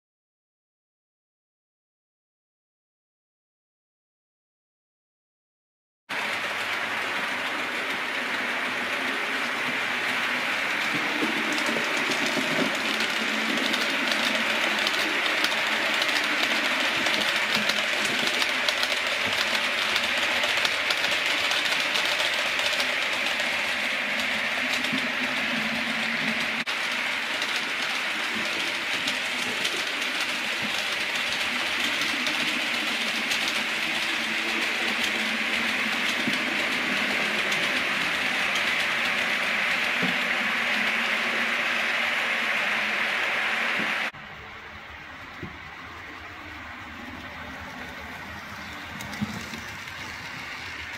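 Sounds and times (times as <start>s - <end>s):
model train motor whir: 6.2s - 44.1s, 45.6s - 50.9s
wheels clicking over rail joints: 6.2s - 50.9s.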